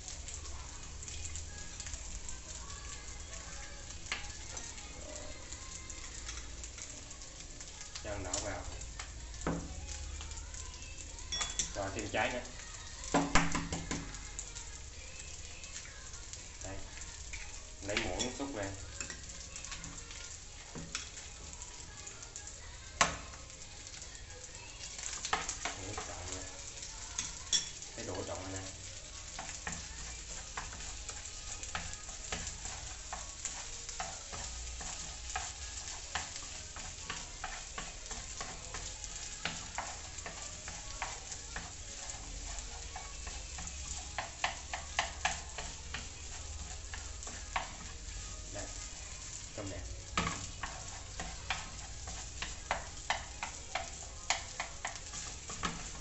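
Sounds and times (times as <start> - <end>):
food sizzling in a pan: 0.0 - 56.0
chopsticks scraping a pan: 25.0 - 56.0.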